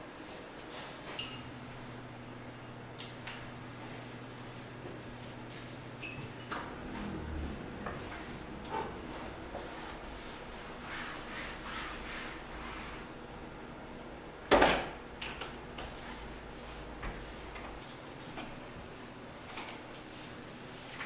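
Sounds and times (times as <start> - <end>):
cloth wiping countertop: 0.2 - 1.1, 3.8 - 5.9, 6.5 - 13.2, 15.8 - 21.0.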